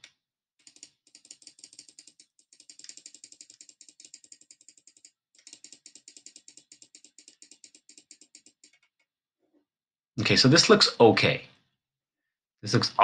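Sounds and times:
mouse button clicking rapidly: 0.6s - 8.9s.

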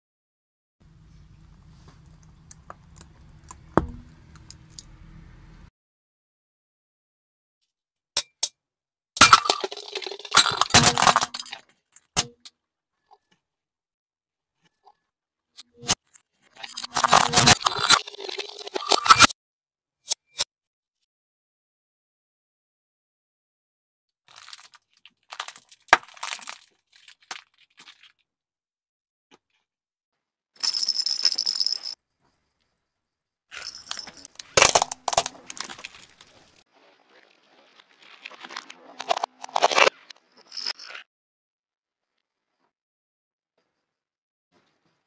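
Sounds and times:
plastic cracking and shattering: 9.2s - 11.7s, 24.3s - 28.1s, 34.2s - 36.6s
tyre crushing small objects: 24.3s - 28.2s, 33.6s - 41.0s.

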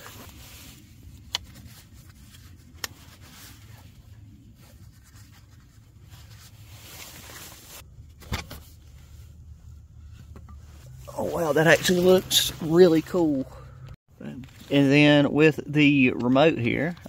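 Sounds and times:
nylon fabric rustling: 0.0s - 7.8s
low steady rumble: 0.0s - 17.0s.

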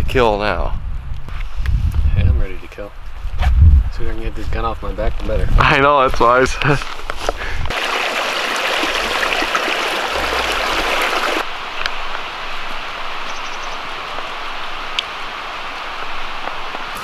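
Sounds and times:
creek running over rocks: 7.7s - 11.5s.

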